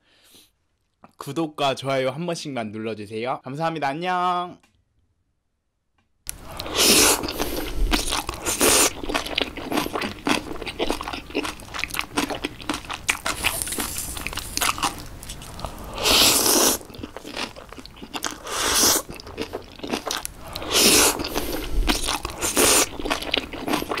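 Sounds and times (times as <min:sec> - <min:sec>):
crisp crackle: 0:06.3 - 0:24.0
crunching and chewing food: 0:06.3 - 0:24.0.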